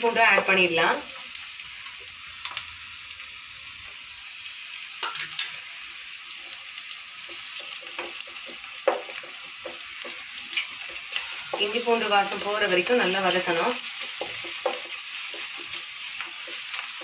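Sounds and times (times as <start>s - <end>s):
onions sizzling in oil: 0.0s - 17.0s
wooden spatula knocking a pan: 7.6s - 10.3s, 14.1s - 15.8s.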